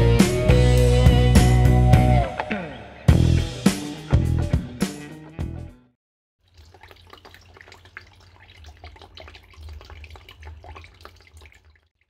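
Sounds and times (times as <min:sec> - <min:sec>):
fountain water trickling and splashing: 0:06.4 - 0:12.0.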